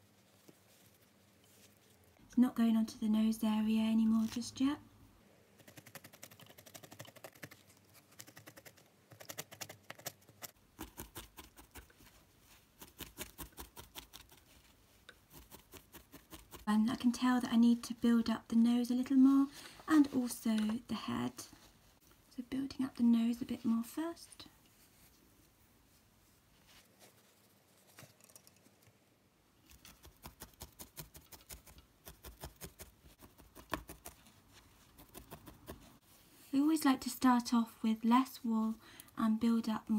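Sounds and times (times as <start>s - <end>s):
hands rustling wool: 0.0s - 2.2s, 23.3s - 28.2s.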